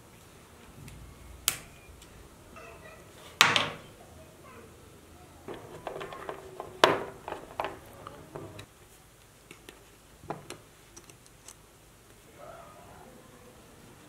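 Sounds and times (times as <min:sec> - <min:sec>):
small plastic parts clicking: 0:05.5 - 0:08.7.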